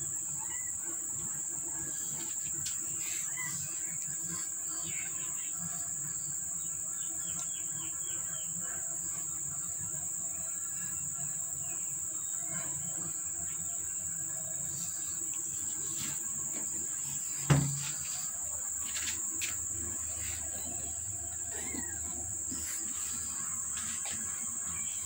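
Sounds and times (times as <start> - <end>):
insects chirring: 0.0 - 25.0
sharp knock: 17.5 - 18.0.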